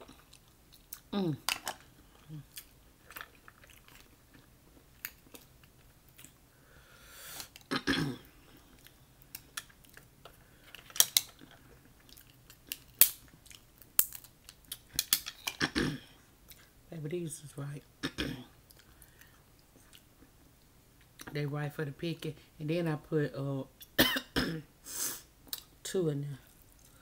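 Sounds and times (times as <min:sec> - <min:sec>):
chewing: 0:00.0 - 0:06.4, 0:08.4 - 0:15.1, 0:26.4 - 0:27.0.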